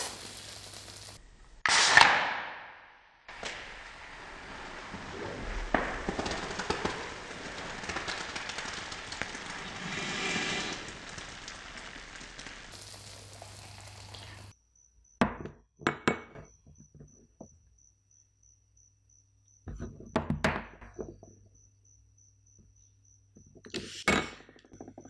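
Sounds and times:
steady hiss: 0:00.0 - 0:01.6, 0:03.3 - 0:14.5.

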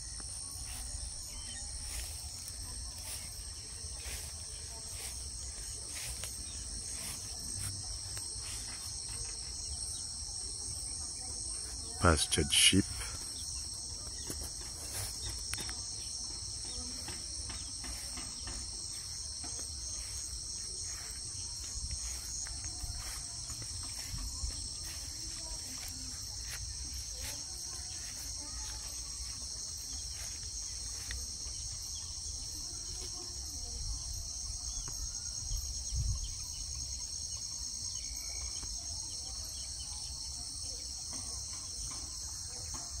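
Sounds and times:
crickets and insects chirping: 0:00.0 - 0:43.0.

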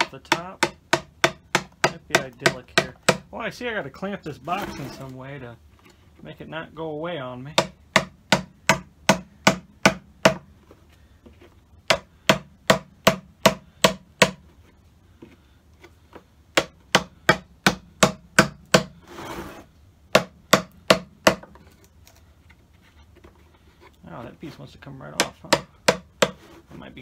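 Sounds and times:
chisel striking wood: 0:00.0 - 0:03.3, 0:07.6 - 0:10.5, 0:11.8 - 0:14.4, 0:16.5 - 0:19.0, 0:20.1 - 0:21.6, 0:25.1 - 0:26.4.

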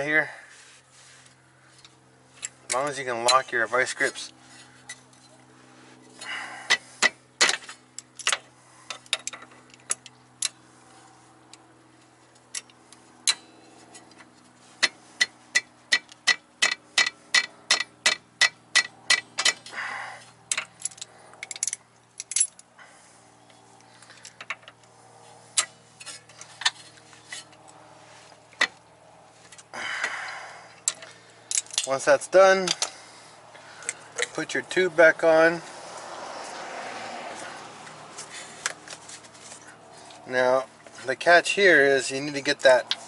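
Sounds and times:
faint steady hum: 0:00.2 - 0:36.0
wrench clicking: 0:14.8 - 0:19.7.

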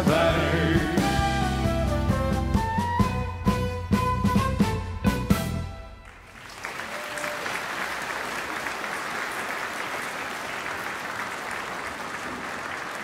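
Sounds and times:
audience applause: 0:06.0 - 0:13.0.

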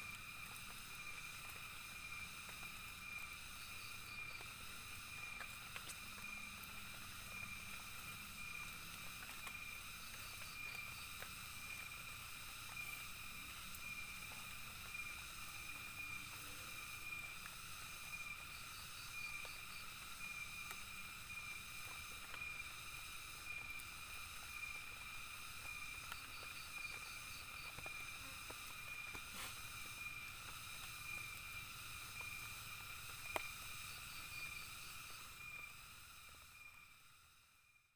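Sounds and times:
insects chirring: 0:00.0 - 0:37.9
rapid ticks: 0:21.7 - 0:35.7.

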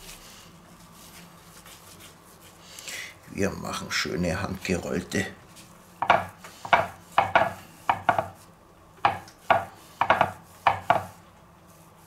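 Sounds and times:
meat rubbing on wooden board: 0:05.5 - 0:12.0.

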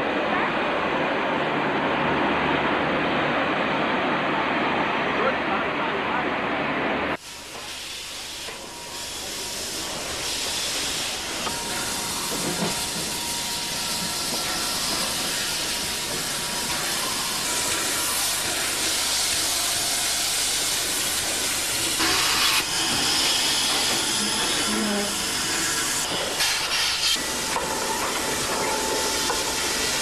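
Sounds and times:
steam locomotive hissing: 0:07.2 - 0:30.0.

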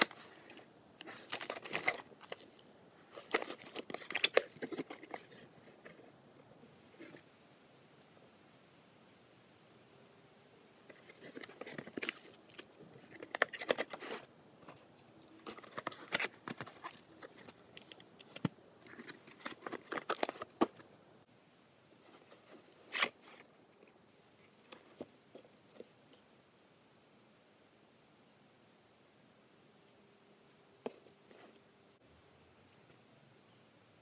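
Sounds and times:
cardboard and paper rustling: 0:00.0 - 0:06.0, 0:10.9 - 0:14.8, 0:15.4 - 0:20.8.

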